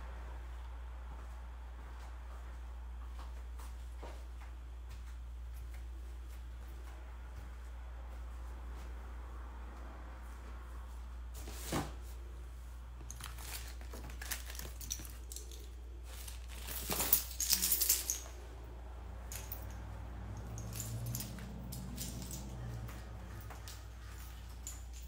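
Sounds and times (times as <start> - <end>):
steady low hum: 0.0 - 25.0
objects knocking and rustling: 13.0 - 18.4
clatter of objects: 13.1 - 18.3.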